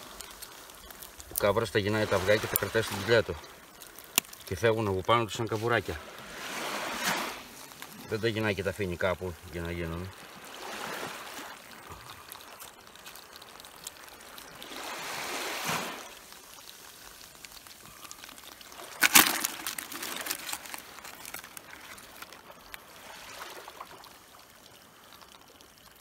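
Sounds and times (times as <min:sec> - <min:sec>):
crackling drips: 0:00.0 - 0:26.0
water trickling and sloshing: 0:00.0 - 0:26.0
loud water splash: 0:06.3 - 0:07.5, 0:14.7 - 0:16.2, 0:18.8 - 0:22.3.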